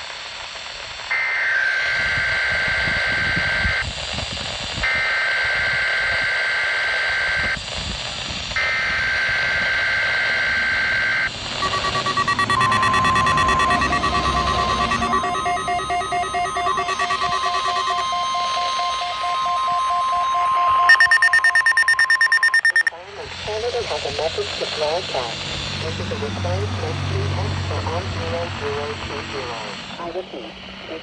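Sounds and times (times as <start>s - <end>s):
rapid multi-pitch beeping: 8.6s - 22.9s
two-pitch alert tones: 11.6s - 22.9s.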